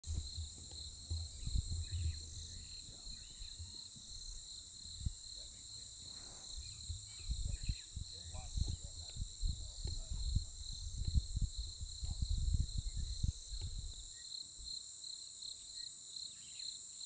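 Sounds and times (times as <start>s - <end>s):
low rumbling and thuds: 0.0s - 14.1s
insects chorus: 0.0s - 17.0s.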